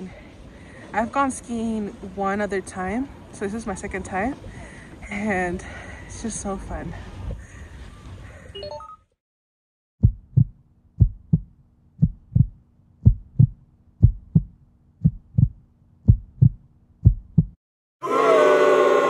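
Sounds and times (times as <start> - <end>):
heartbeat thumps: 10.0 - 17.6.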